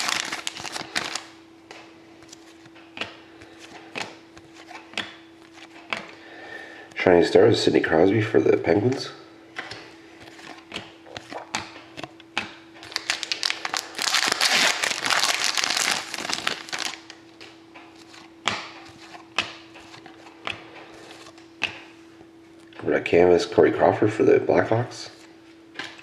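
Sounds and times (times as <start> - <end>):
foil wrapper crinkling: 0.0 - 1.4, 12.8 - 17.2
faint steady hum: 0.0 - 26.0
cards flicking and clicking: 10.4 - 13.3.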